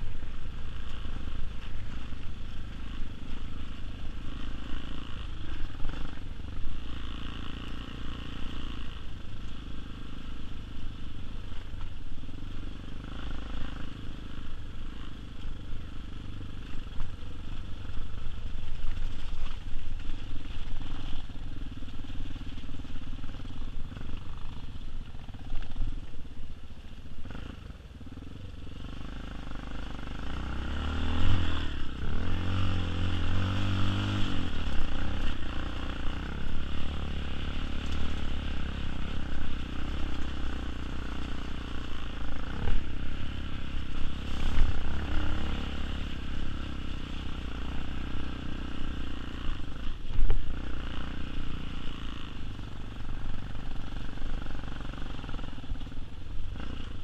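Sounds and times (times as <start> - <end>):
dirt bike engine revving: 28.8 - 55.9.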